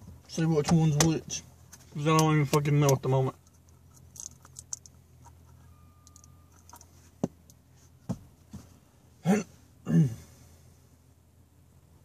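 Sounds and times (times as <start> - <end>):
faint high steady tone: 5.2 - 7.5
man's short vocal sounds: 9.2 - 10.4.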